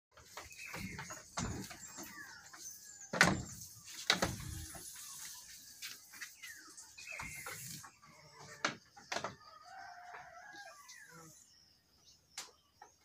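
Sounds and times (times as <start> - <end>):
birds chirping: 0.1 - 13.0.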